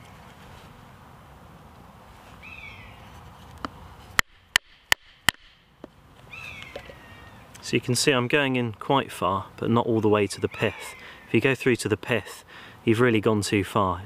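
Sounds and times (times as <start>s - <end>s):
bird falling call: 6.3s - 7.5s.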